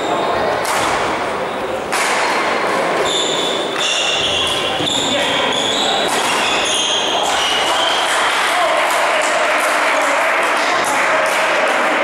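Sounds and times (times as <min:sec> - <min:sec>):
echoing chatter: 0:00.0 - 0:12.0
shoe squeaks on floor: 0:03.0 - 0:08.2
rackets striking shuttlecock: 0:06.0 - 0:10.6.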